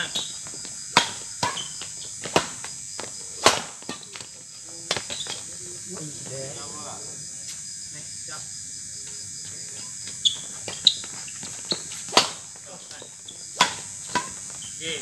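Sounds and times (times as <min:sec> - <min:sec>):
crickets chirping: 0:00.0 - 0:15.0
badminton racket hits: 0:03.4 - 0:04.2.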